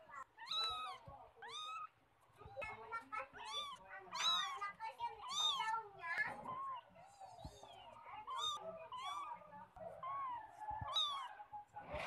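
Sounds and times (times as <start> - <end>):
cat meowing: 0.4 - 1.9, 3.3 - 4.6, 5.2 - 5.7, 7.4 - 11.4.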